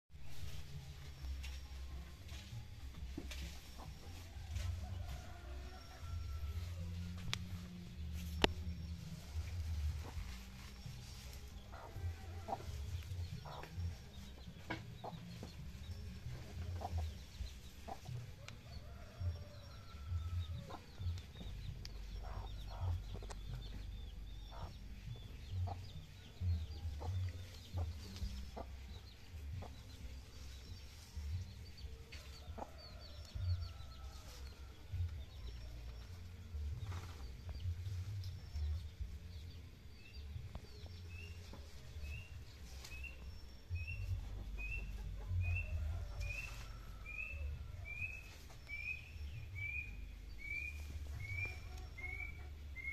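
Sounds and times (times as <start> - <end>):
chickens clucking: 7.2 - 52.9
small birds chirping: 7.5 - 34.0.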